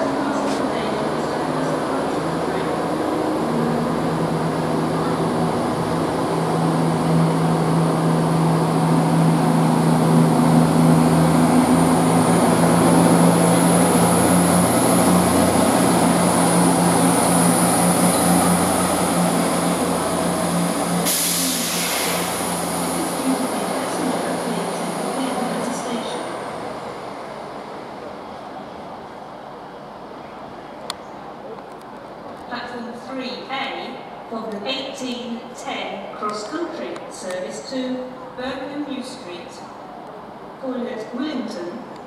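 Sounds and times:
train diesel engines humming: 0.0 - 42.0
air release hiss: 21.0 - 22.5.

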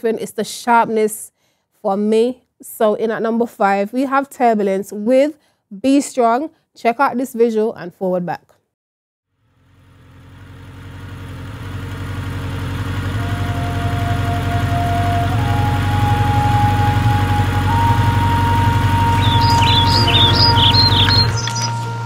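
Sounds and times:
motorcycle engine idling: 9.4 - 22.0.

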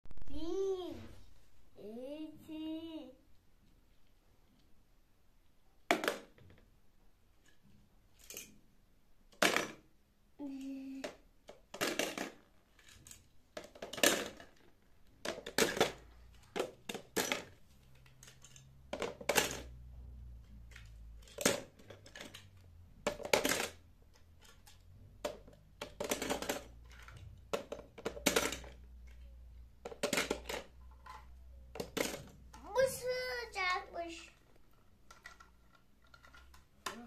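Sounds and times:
toy cars clicking together: 8.2 - 8.6, 9.3 - 19.8, 20.4 - 33.0, 34.0 - 37.0.

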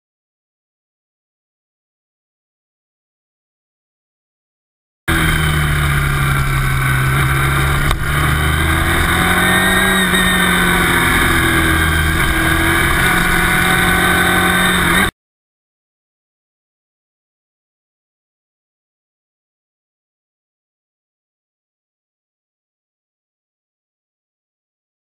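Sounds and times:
motorcycle engine running: 5.1 - 15.1.

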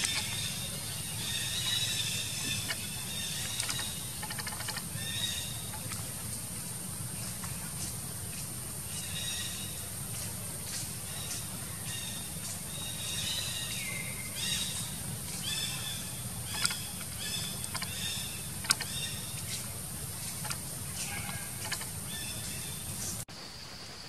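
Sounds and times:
steady high hiss: 0.0 - 24.0
sharp clicks: 2.6 - 5.0, 16.5 - 18.0, 18.6 - 19.2.

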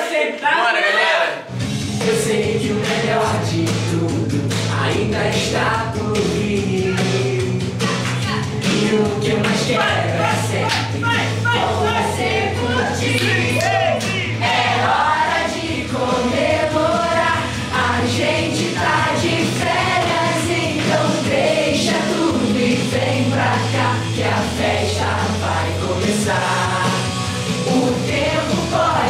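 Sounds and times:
group of voices singing: 0.0 - 29.0
steady drum beat: 1.5 - 29.0.

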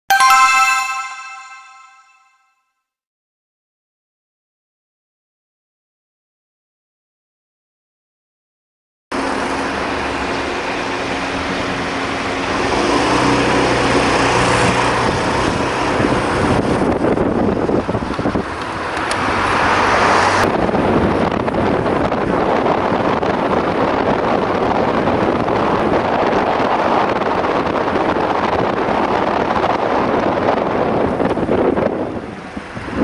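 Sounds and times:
wind noise on microphone: 16.0 - 18.6, 20.5 - 33.0.

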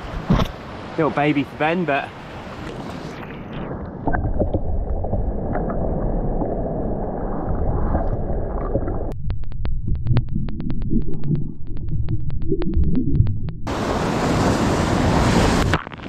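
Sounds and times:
surf: 0.0 - 4.5, 13.7 - 16.0
sharp ticks: 9.1 - 13.7.

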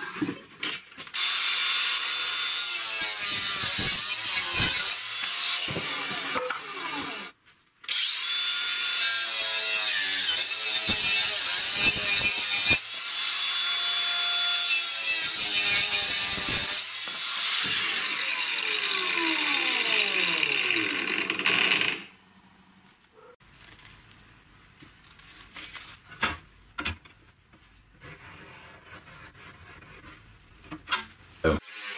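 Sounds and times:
angle grinder cutting chipboard: 1.2 - 7.3, 7.9 - 22.1.

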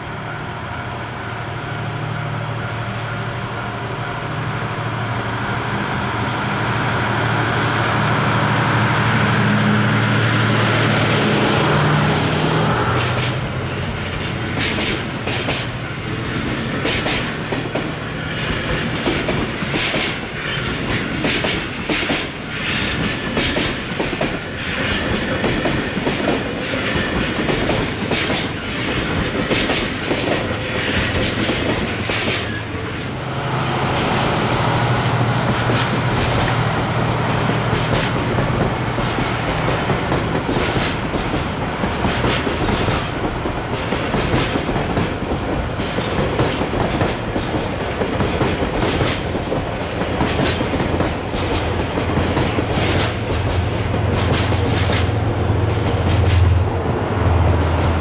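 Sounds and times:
freight train wheels clattering: 11.9 - 33.2, 33.8 - 58.0.

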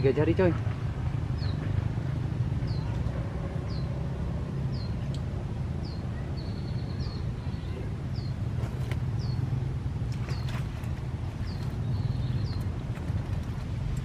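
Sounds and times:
bird chirping: 9.1 - 9.5, 11.4 - 13.0.

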